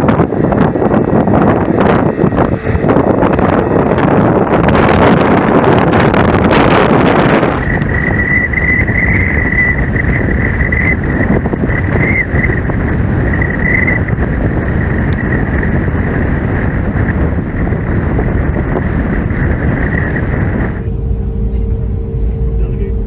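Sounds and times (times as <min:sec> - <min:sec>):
high wavering whine: 0:00.0 - 0:23.0
jet engines at low power: 0:00.0 - 0:23.0
wind noise on microphone: 0:00.0 - 0:23.0.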